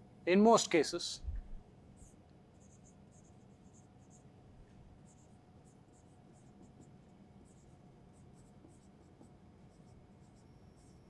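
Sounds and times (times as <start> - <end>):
marker squeaking on whiteboard: 5.1 - 11.0.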